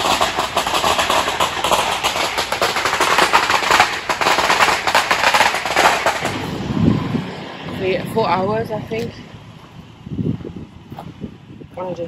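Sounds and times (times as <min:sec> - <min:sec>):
rapid crackling pops: 0:00.0 - 0:06.6.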